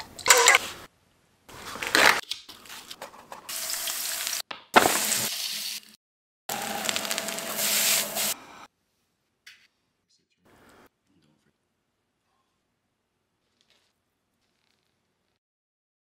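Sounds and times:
rice sizzling in a pan: 3.5s - 8.4s.

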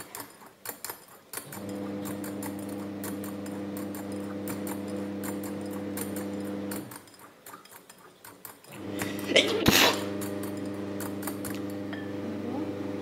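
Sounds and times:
whisk clicking in glass bowl: 0.0s - 9.2s.

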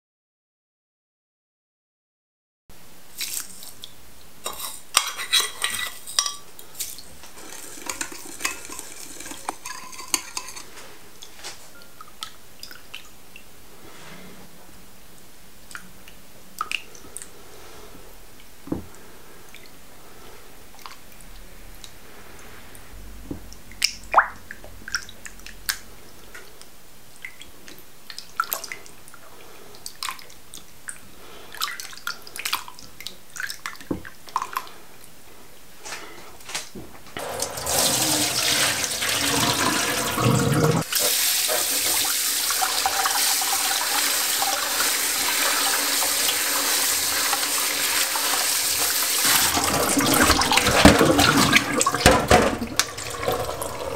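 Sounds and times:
tap water running: 7.0s - 10.8s, 37.2s - 53.9s.

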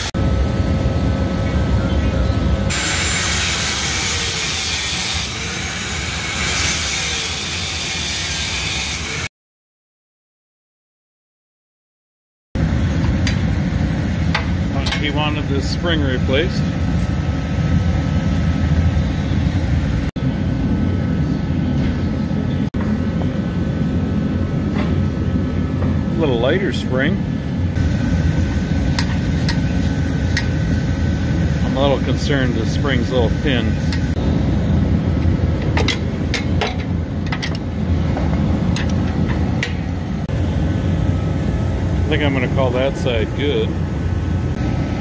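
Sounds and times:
low rumbling machine noise: 0.0s - 9.2s, 12.6s - 45.0s
low mechanical hum: 0.0s - 9.3s, 12.6s - 45.0s
wrenches clinking on metal: 14.8s - 15.3s.

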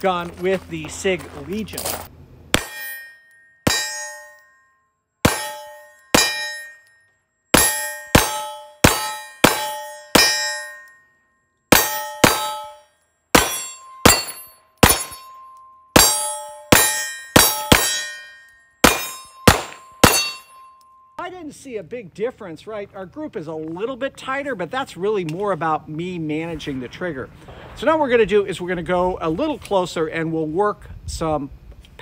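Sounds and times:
steel plate ringing clang: 2.5s - 21.2s
pistol shots: 11.7s - 15.2s, 16.0s - 18.2s, 18.8s - 20.4s.

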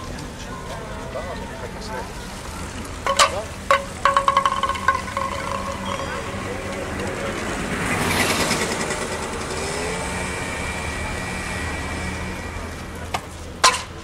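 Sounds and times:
rushing street traffic noise: 0.0s - 14.0s.

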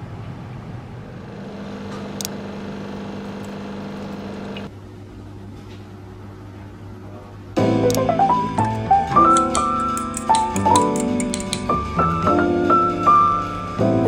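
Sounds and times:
mechanical hum: 0.0s - 14.0s.

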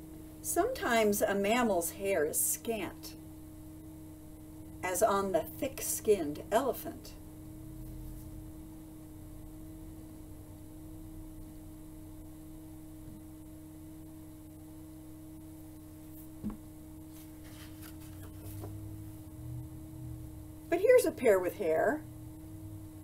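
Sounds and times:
low electrical hum: 0.0s - 23.0s
book handling sounds: 16.0s - 18.8s
faint knock: 16.4s - 16.6s.

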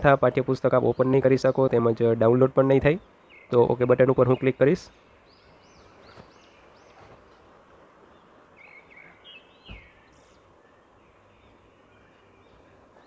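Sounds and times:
background hiss: 0.0s - 13.0s
birds chirping: 0.0s - 13.0s
soft low thump: 9.6s - 9.9s.

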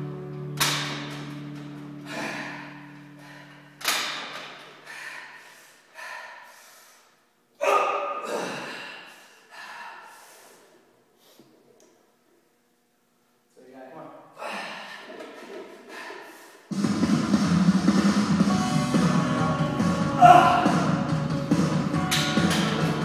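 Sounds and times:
man breathing forcefully: 2.0s - 7.2s, 8.2s - 11.4s, 14.4s - 16.8s.

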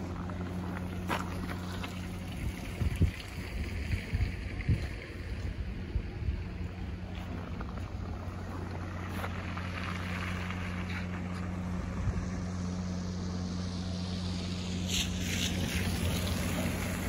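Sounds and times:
low engine-like hum: 0.0s - 17.0s
wind noise: 1.9s - 8.1s.

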